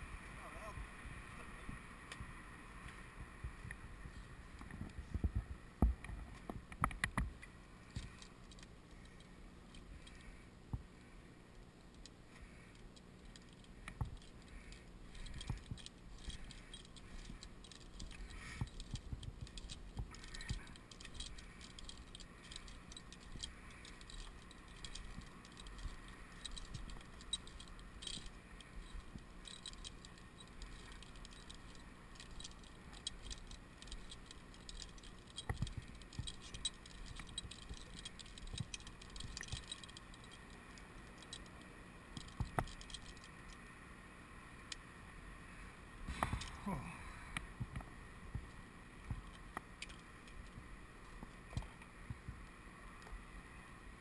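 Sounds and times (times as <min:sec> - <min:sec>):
metal carabiners clinking: 0:07.8 - 0:10.4, 0:11.8 - 0:43.6, 0:46.3 - 0:46.6, 0:49.2 - 0:51.2
light clicks: 0:47.3 - 0:53.2.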